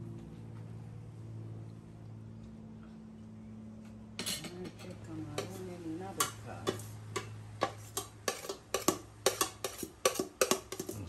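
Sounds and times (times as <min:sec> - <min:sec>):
metal spoon scraping a pot: 0:05.4 - 0:11.0.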